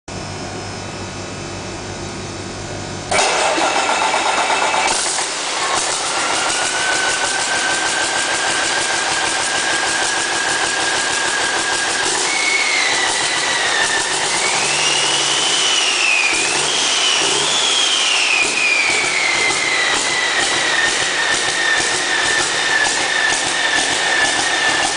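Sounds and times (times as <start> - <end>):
diesel engine running: 0.1 - 24.9
high wavering whistle: 6.0 - 24.9.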